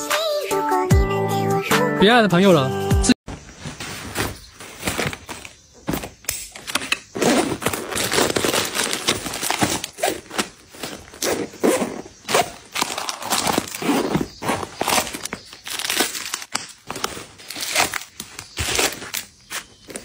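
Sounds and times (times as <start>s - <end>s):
rustling and crinkling tissue paper: 3.3s - 6.1s, 7.2s - 11.8s, 12.4s - 20.0s.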